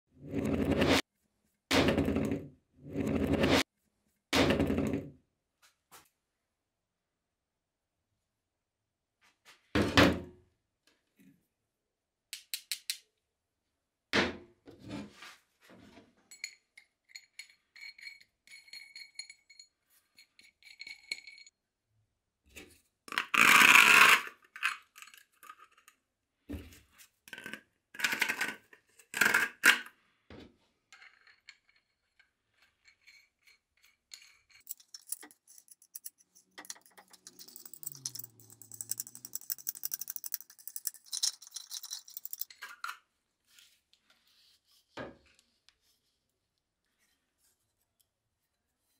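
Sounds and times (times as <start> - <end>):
metal scraping on workbench: 0.2 - 1.0, 2.0 - 3.6
metal clinks: 34.5 - 42.5.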